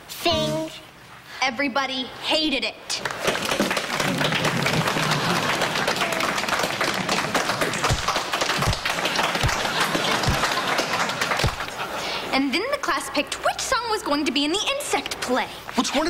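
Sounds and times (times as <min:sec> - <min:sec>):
applause: 0:03.0 - 0:11.9.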